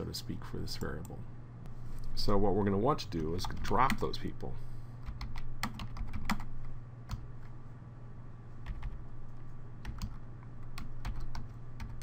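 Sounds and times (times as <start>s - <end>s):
computer keyboard keystrokes: 5.0s - 6.5s, 8.6s - 9.0s, 9.8s - 12.0s.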